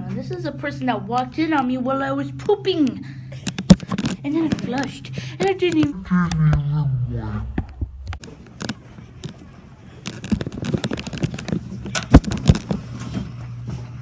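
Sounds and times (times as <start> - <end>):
phone handling noise: 3.4 - 4.8, 10.0 - 12.8.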